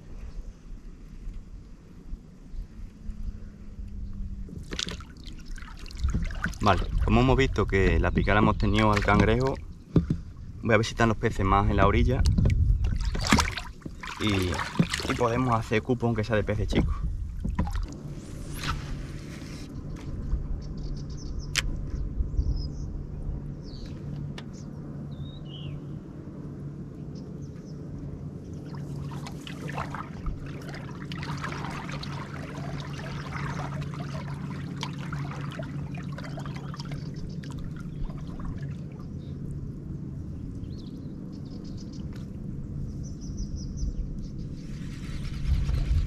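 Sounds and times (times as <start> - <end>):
steady low hum: 0.0 - 46.0
water splashing against pontoons: 4.5 - 10.2, 12.2 - 15.8, 16.6 - 18.1, 28.5 - 39.2.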